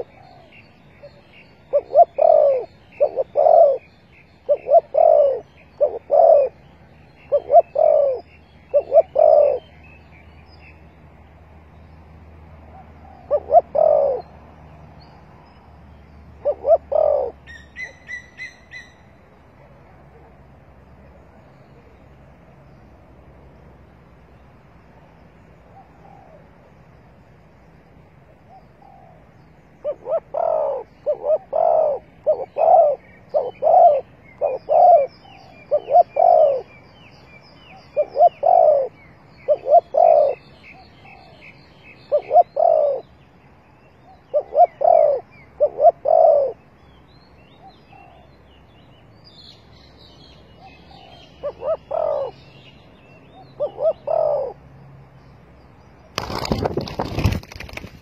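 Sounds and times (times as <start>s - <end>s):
dove cooing: 0.0s - 6.6s, 7.2s - 9.7s, 12.7s - 14.3s, 16.4s - 19.0s, 29.8s - 36.8s, 37.8s - 41.5s, 42.1s - 43.0s, 44.3s - 46.6s, 50.6s - 52.4s, 53.6s - 54.6s
small birds chirping: 0.0s - 58.0s.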